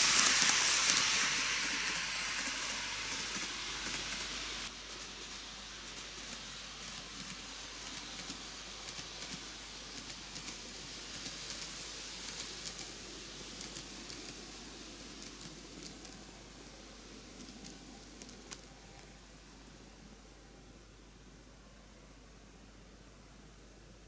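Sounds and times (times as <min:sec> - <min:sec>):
model train rolling rattle: 0:00.0 - 0:19.2
steady hiss: 0:00.0 - 0:24.0.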